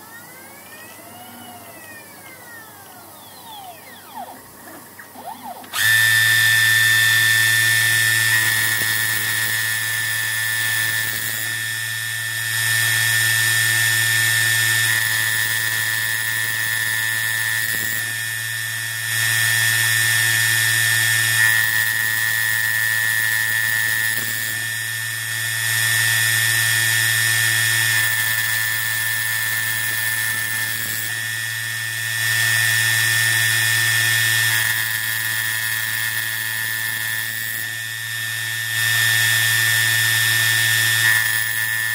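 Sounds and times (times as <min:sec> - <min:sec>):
milling spindle whining: 0:00.0 - 0:14.1.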